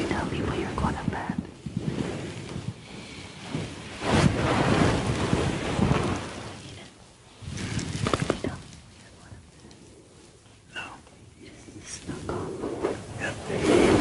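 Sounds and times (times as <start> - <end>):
bedding rustling: 0.0 - 10.7.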